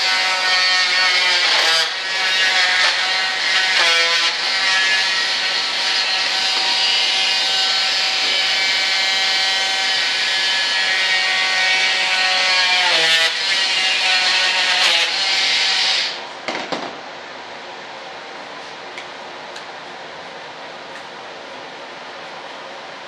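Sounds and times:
electric rotary tool whine: 0:00.0 - 0:16.2.

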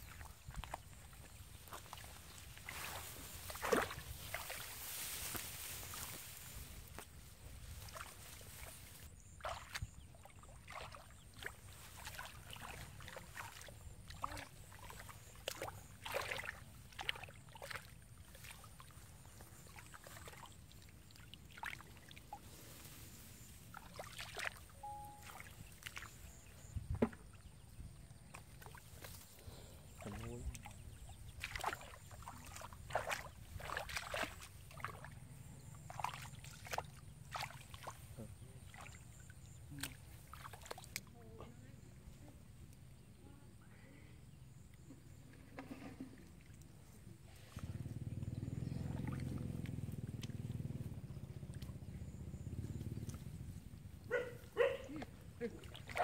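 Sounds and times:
water splashing and sloshing: 0:00.0 - 0:42.2, 0:44.5 - 0:56.0
low steady rumble: 0:46.0 - 0:54.6.

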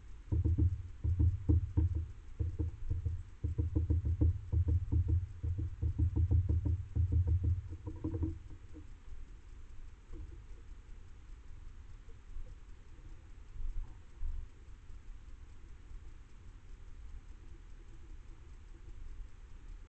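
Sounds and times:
rapid irregular tapping: 0:00.0 - 0:19.9
low thuds: 0:00.3 - 0:08.9.

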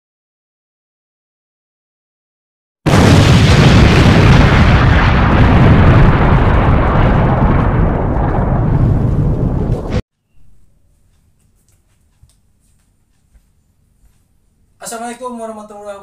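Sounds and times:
explosion-like rumble: 0:02.9 - 0:10.0.

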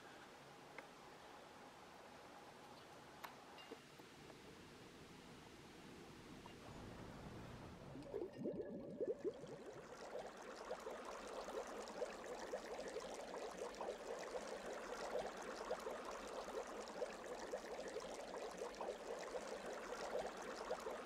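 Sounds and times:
water bubbling and babbling: 0:07.7 - 0:21.0.

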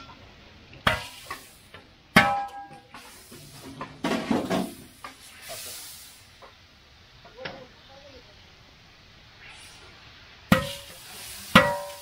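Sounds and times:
metal pot clanging: 0:02.1 - 0:02.9, 0:10.5 - 0:12.0.

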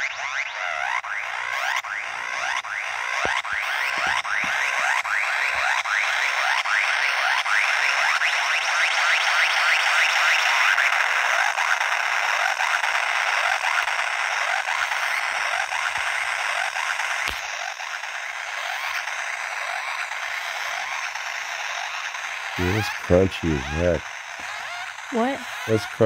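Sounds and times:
synthesizer gritty noisy tone: 0:00.0 - 0:26.0
click: 0:17.2 - 0:17.5.

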